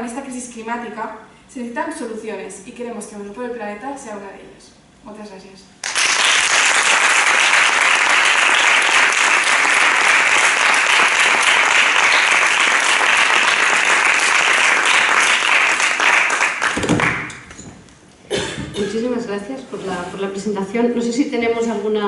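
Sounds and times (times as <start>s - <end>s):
audience applauding: 5.8s - 17.4s.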